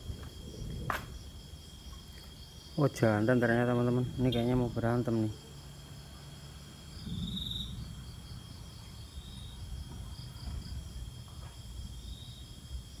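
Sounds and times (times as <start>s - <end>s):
night crickets trilling: 0.0s - 13.0s
low rumble: 6.6s - 12.0s.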